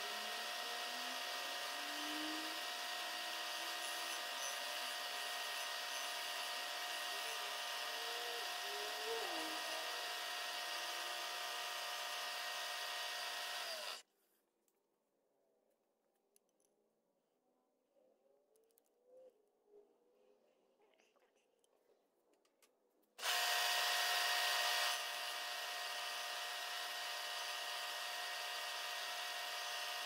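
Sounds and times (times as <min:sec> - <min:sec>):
end mill cutting aluminum: 0:00.0 - 0:14.0, 0:23.2 - 0:30.0
milling machine motor whine: 0:00.0 - 0:14.0, 0:23.2 - 0:30.0.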